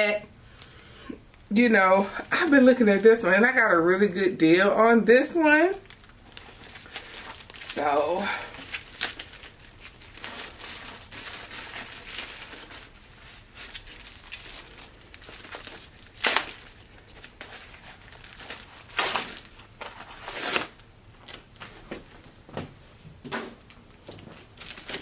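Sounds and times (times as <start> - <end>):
plastic wrap rustling: 5.6 - 22.3, 23.5 - 25.0.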